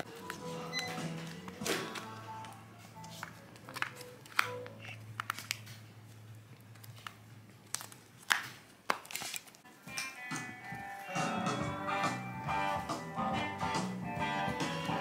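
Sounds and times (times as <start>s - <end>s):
quiet background music: 0.0s - 15.0s.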